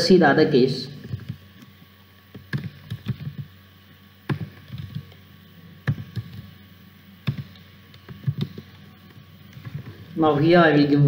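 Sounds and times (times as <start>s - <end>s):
keyboard typing clicks: 2.3s - 3.5s, 4.3s - 5.2s, 5.8s - 6.5s, 7.2s - 8.8s.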